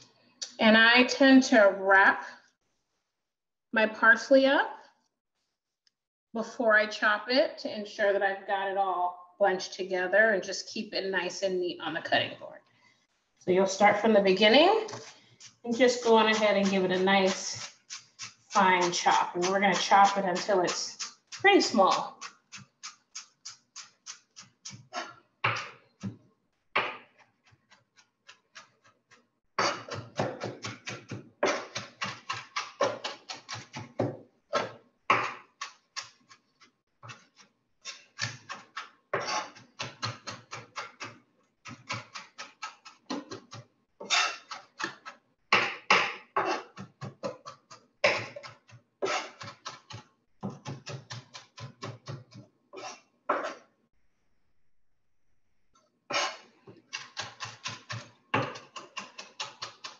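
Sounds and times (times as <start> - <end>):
knife chopping on cutting board: 25.4 - 25.8, 26.8 - 27.1, 29.6 - 36.2, 37.9 - 52.4.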